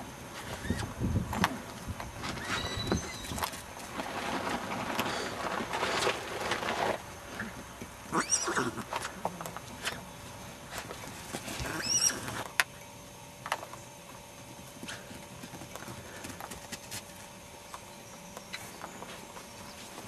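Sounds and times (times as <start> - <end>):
foal whinnying: 8.1 - 8.8, 11.6 - 12.4.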